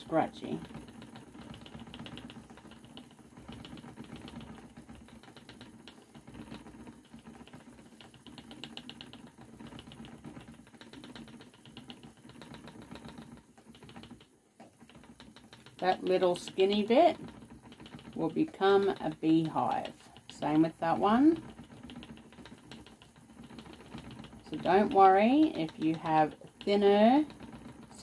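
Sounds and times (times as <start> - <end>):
rapid ticking of spinning wheel: 0.0 - 28.0
spinning wheel humming: 0.0 - 28.0.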